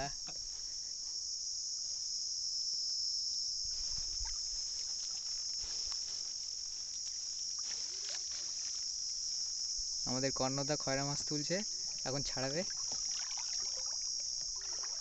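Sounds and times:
high-pitched insect chorus: 0:00.0 - 0:15.0
faint water splashes: 0:04.0 - 0:05.3, 0:11.8 - 0:15.0.

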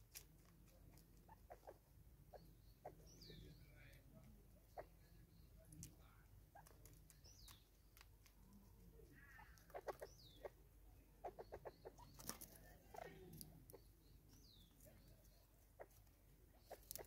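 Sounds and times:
high falling bird chirps: 0:09.0 - 0:17.0.

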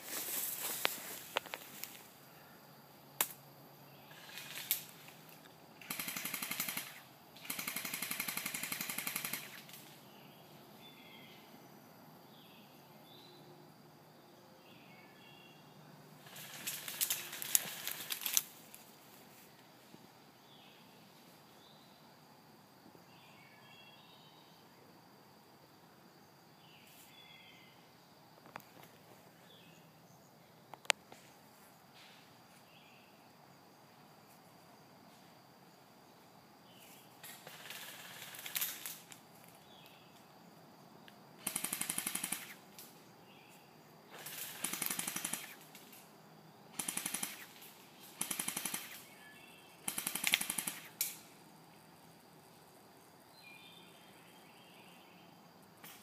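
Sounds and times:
airsoft guns firing bursts: 0:05.8 - 0:09.7, 0:16.2 - 0:18.4, 0:37.4 - 0:38.9, 0:41.4 - 0:42.6, 0:44.2 - 0:45.7, 0:46.8 - 0:49.1, 0:49.8 - 0:51.0.

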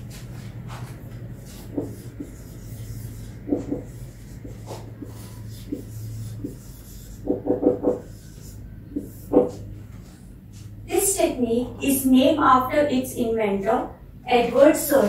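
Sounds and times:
steady low hum: 0:00.0 - 0:15.0
marker squeaking on whiteboard: 0:01.5 - 0:10.1.

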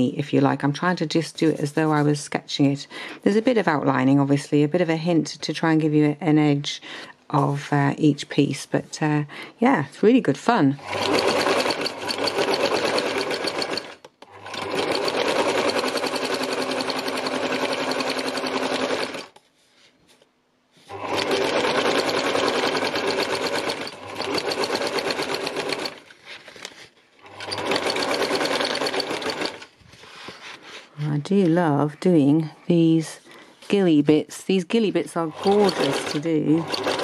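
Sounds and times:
sewing machine needle hammering: 0:10.8 - 0:19.3, 0:21.0 - 0:26.0, 0:27.3 - 0:29.7, 0:35.3 - 0:37.0.

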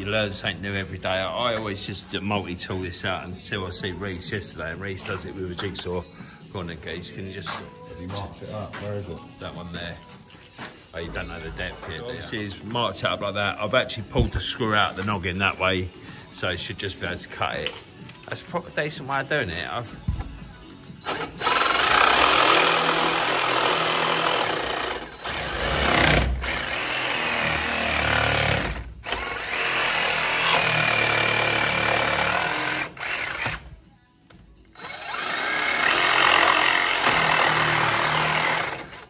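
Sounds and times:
electric jigsaw cutting: 0:21.0 - 0:33.7, 0:34.8 - 0:39.0.

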